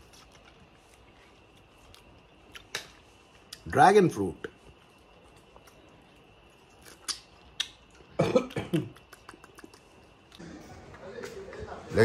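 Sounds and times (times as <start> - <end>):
person coughing: 8.2 - 8.9.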